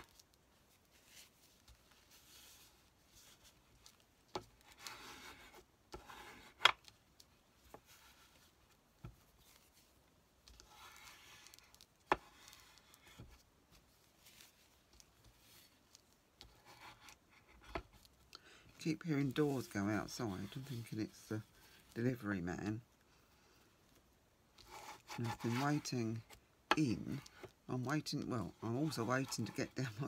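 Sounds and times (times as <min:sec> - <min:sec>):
paper rustling: 0:06.3 - 0:17.2.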